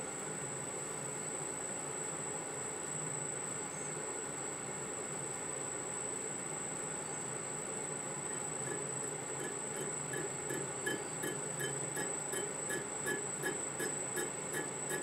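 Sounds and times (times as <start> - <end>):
lathe whining and humming: 8.2 - 15.0
light ticking: 8.3 - 15.0.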